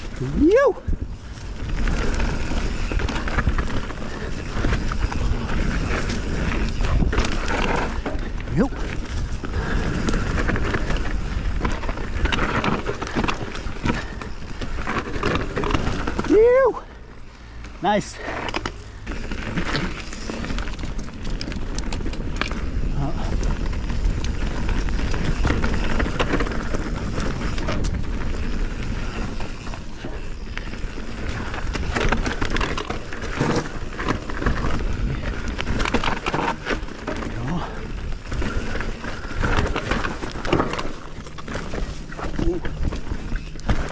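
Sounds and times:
wind rumble on microphone: 0.0s - 16.6s, 19.0s - 43.9s
bike clicks and rattles: 0.0s - 43.9s
bike tyres rolling on dirt: 0.0s - 43.9s.

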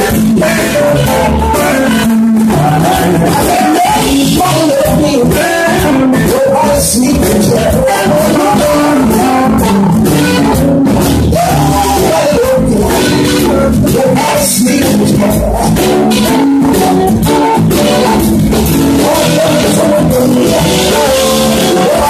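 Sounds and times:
drum kit: 0.0s - 22.0s
electric guitars: 0.0s - 22.0s.

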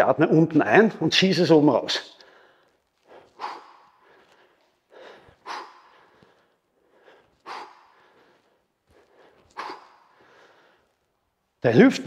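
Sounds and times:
man breathing forcefully: 2.2s - 11.1s.

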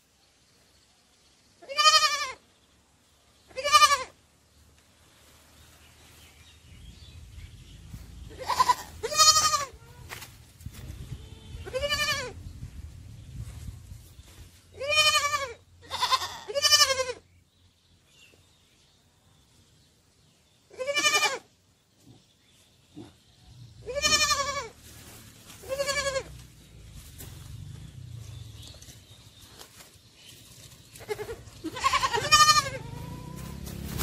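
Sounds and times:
sheep bleating: 25.7s - 26.3s, 31.1s - 33.5s.

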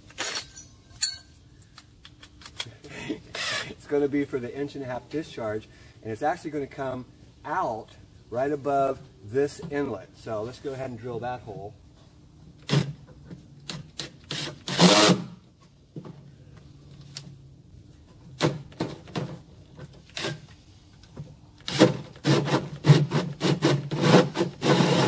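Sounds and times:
drill hole saw cutting plastic: 21.7s - 25.0s.

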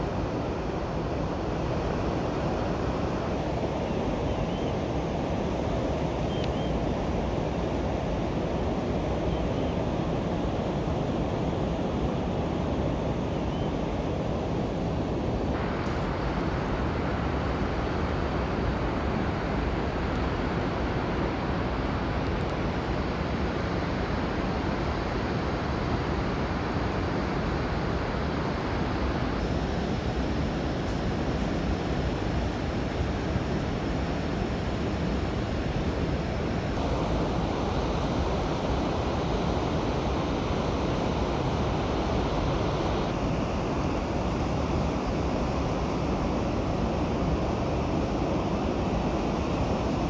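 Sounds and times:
steady rushing noise: 14.1s - 50.0s.

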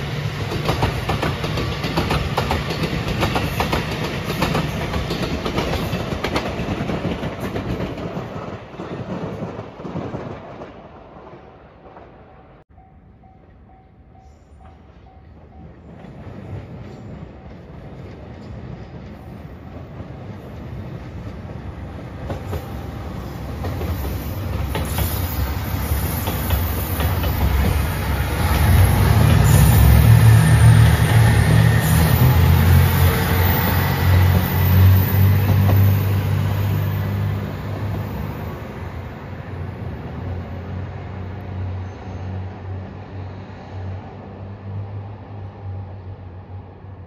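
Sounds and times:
train wheels clicking on rail joints: 0.1s - 10.8s, 13.4s - 38.8s
diesel train engines droning: 12.4s - 47.0s.

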